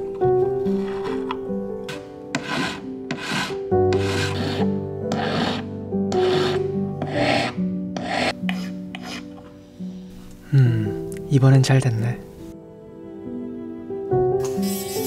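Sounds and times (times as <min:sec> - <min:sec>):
background music: 0:00.0 - 0:15.0
hand file rasping on metal ring: 0:02.4 - 0:09.2.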